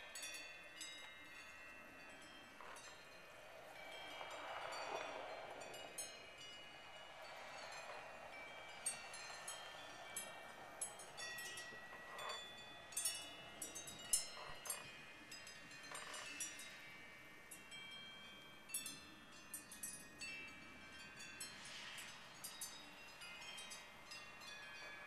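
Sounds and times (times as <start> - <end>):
wind chimes ringing: 0.0 - 25.0
faint wind rushing: 3.2 - 14.3.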